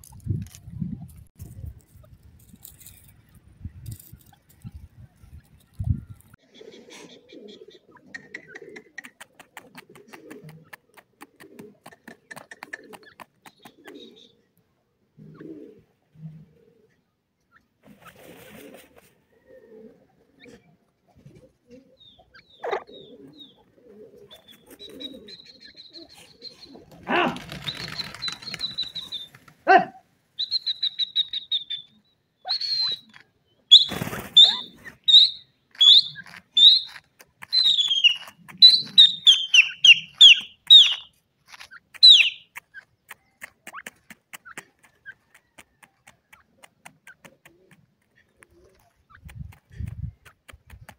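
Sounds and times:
wing-flapping in dry dust: 0:08.8 - 0:14.1, 0:26.8 - 0:29.6, 0:33.1 - 0:50.9
francolin whistled calls and trill: 0:27.6 - 0:29.3, 0:30.4 - 0:33.1, 0:33.7 - 0:41.1, 0:42.0 - 0:42.5.

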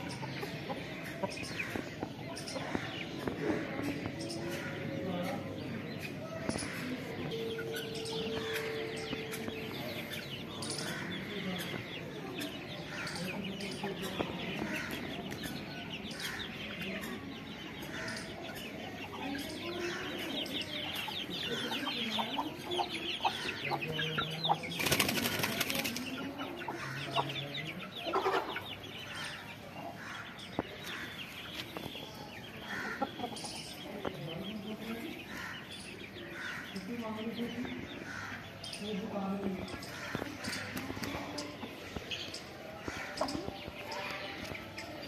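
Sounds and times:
chickens clucking and chirping: 0:00.0 - 0:45.0
wing flapping: 0:24.8 - 0:26.1.

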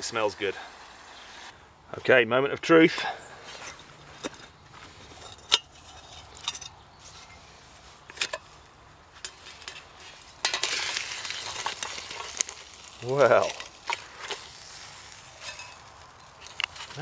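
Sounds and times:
sizzling hiss: 0:00.0 - 0:01.7, 0:10.0 - 0:17.0.

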